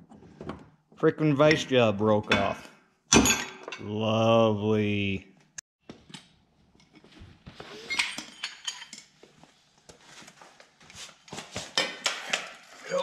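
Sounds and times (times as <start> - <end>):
metal tools clinking: 7.8 - 9.2.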